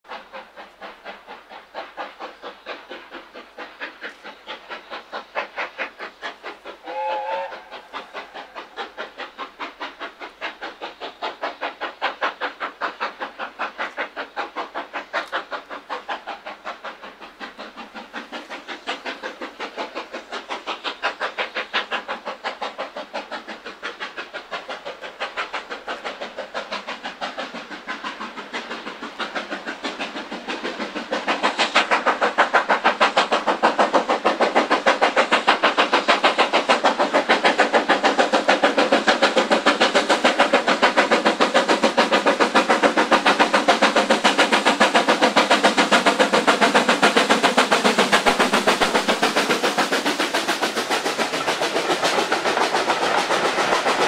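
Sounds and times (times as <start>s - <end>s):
steam locomotive exhaust beats: 0.0s - 54.0s
steam whistle blast: 6.8s - 7.8s.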